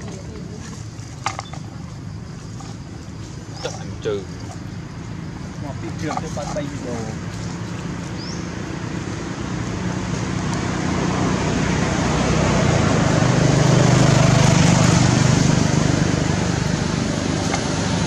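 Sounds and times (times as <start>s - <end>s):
vehicle engine humming: 0.0s - 18.0s.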